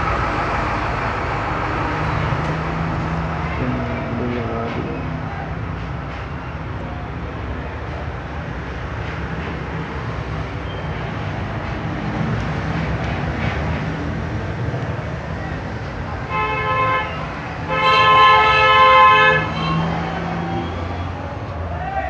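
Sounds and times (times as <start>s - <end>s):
background traffic: 0.0s - 22.0s
vehicle horn honking: 16.3s - 20.0s.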